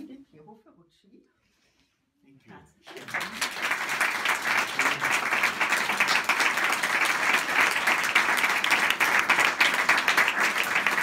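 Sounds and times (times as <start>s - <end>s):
audience applauding: 2.9s - 11.0s.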